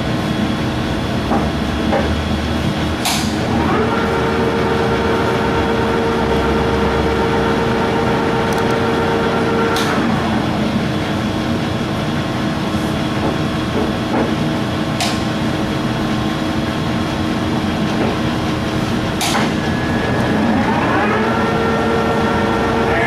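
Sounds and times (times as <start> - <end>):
lathe gearing humming: 0.0 - 23.0
spindle whine: 3.3 - 13.0, 15.1 - 23.0.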